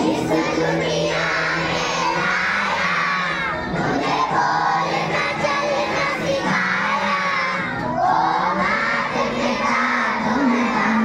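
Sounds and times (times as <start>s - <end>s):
children singing in unison: 0.0s - 11.0s.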